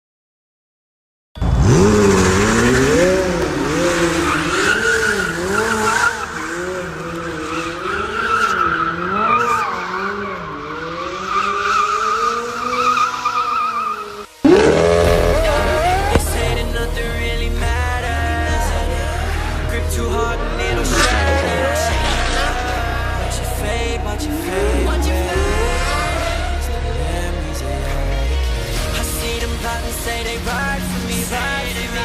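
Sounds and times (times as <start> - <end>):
car engine revving: 1.4 - 32.0
tyres squealing and skidding: 1.4 - 32.0.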